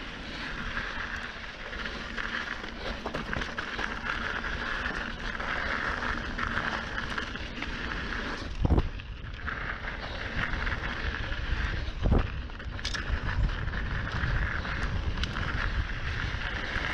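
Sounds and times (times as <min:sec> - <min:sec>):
bike tyres rolling on gravel: 0:00.0 - 0:16.9
wind on the microphone: 0:08.4 - 0:16.9.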